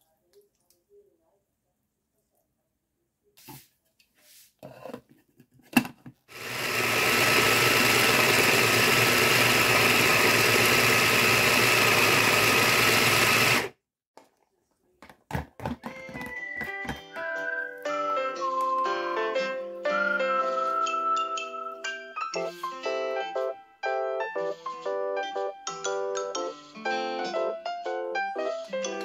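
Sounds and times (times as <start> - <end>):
food chopper motor whining: 6.3 - 13.8.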